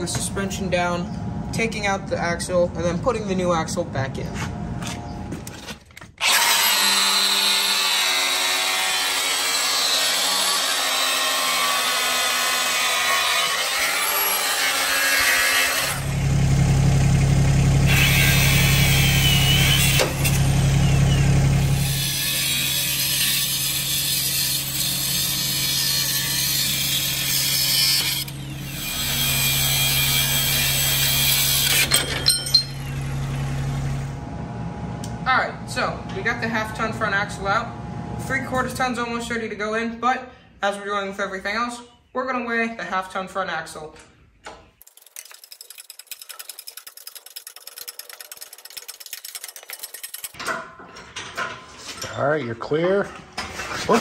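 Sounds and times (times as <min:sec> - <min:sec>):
cut-off tool grinding metal: 0:06.2 - 0:16.2, 0:17.8 - 0:20.7, 0:21.6 - 0:33.4.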